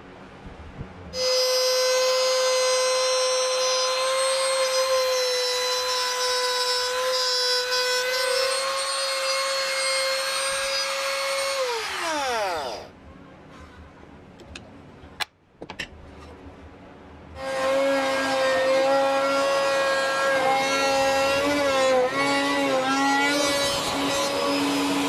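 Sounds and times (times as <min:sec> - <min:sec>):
router motor whining: 0:01.2 - 0:12.9, 0:17.4 - 0:25.0.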